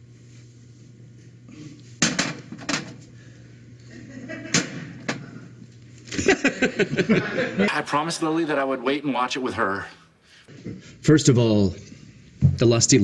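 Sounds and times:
man laughing: 6.1s - 7.8s.

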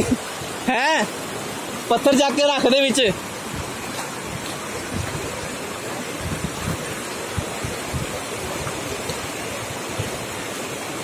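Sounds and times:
river rushing over stones: 0.0s - 11.0s
wind rumble on microphone: 3.4s - 10.4s.

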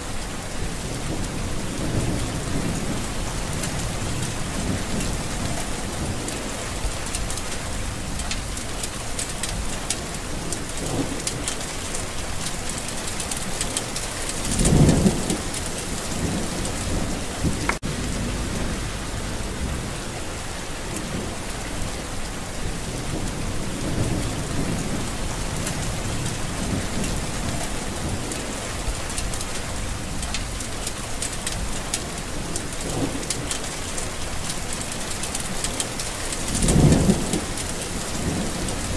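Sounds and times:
heavy rain pattering: 0.0s - 38.9s
low rumble: 16.2s - 20.4s.

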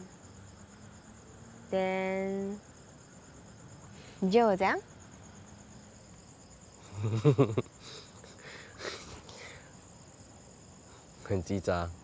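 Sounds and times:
night insects chirring: 0.0s - 12.0s
breathy laughs: 6.8s - 9.3s
man chuckling: 6.8s - 9.3s.

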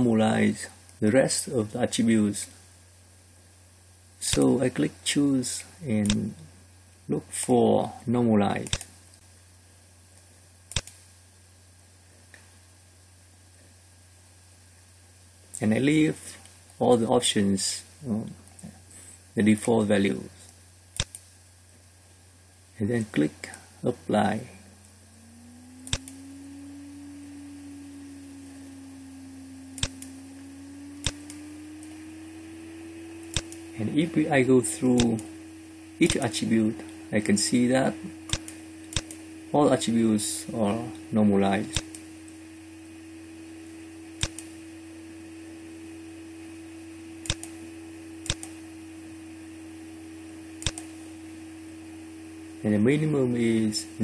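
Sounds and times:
computer mouse clicks: 10.7s - 11.0s, 21.0s - 21.3s, 25.8s - 26.2s, 29.8s - 30.1s, 31.0s - 31.9s, 33.3s - 33.6s, 38.3s - 39.2s, 41.7s - 42.0s, 44.2s - 44.5s, 47.2s - 47.6s, 48.2s - 48.6s, 50.6s - 51.0s
low hum rising in pitch: 22.8s - 54.0s.

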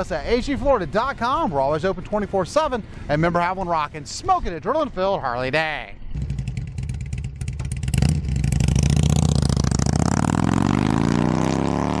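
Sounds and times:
motorcycle engine revving: 6.2s - 12.0s.

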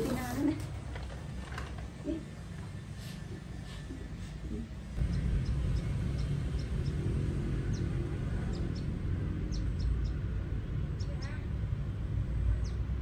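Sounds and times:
steady low rumble: 0.9s - 13.0s
small birds chirping: 5.0s - 10.3s, 10.9s - 11.6s.

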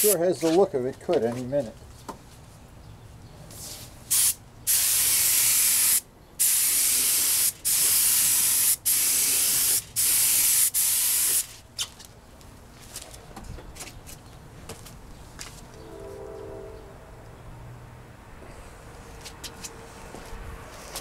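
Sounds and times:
spray gun hissing: 4.1s - 11.5s.

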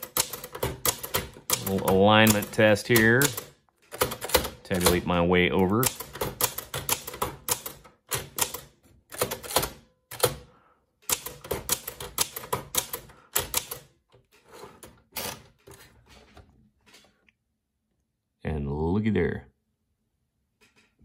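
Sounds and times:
typewriter keys clacking: 0.0s - 10.4s, 11.0s - 13.9s.

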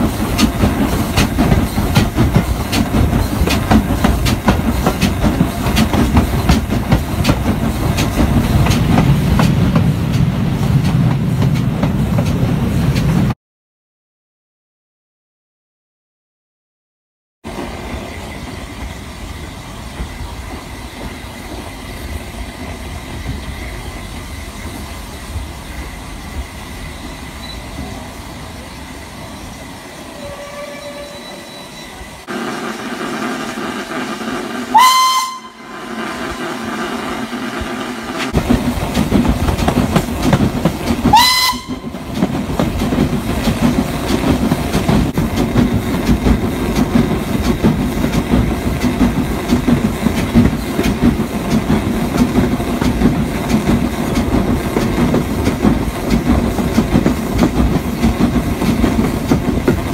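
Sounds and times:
steam locomotive running: 0.0s - 13.4s, 17.5s - 59.9s
steam whistle blasts: 30.1s - 33.2s, 34.7s - 36.1s, 41.1s - 42.0s.

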